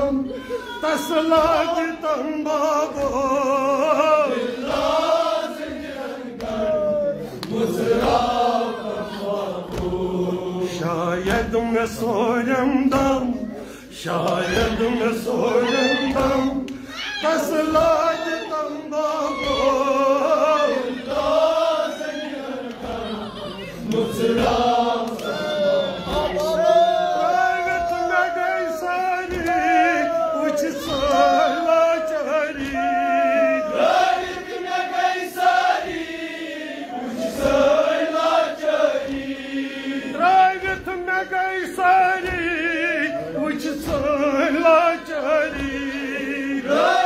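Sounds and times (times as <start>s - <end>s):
man chanting a lament: 0.0s - 5.2s, 10.0s - 21.0s, 23.0s - 34.4s
men's voices singing along: 0.0s - 47.0s.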